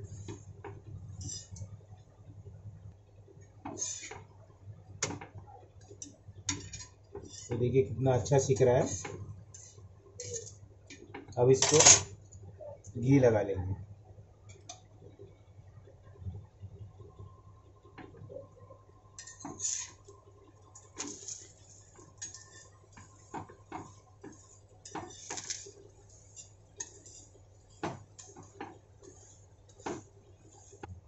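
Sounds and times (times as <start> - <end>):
metal spatula scraping a hot pan: 1.2 - 1.6, 3.7 - 4.2, 6.5 - 7.6, 8.8 - 10.6, 19.2 - 20.1, 20.8 - 30.9.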